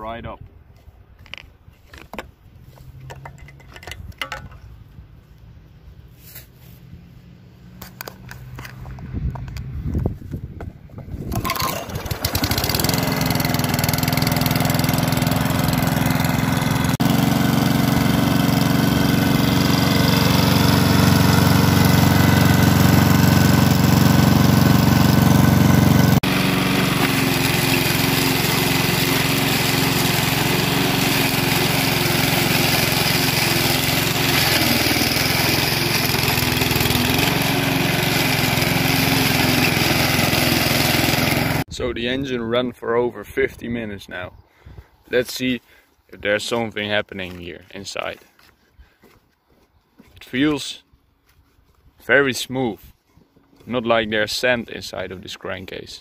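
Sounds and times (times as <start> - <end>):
lawnmower engine running: 11.2 - 41.7.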